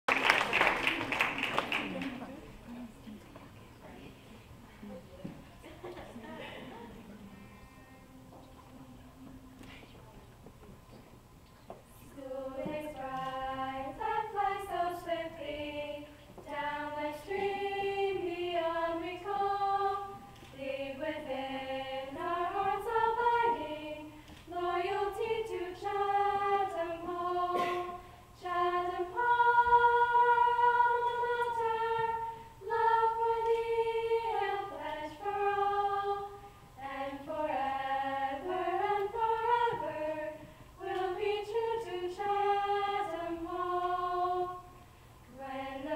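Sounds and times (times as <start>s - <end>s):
women singing a cappella harmony: 12.0s - 45.9s.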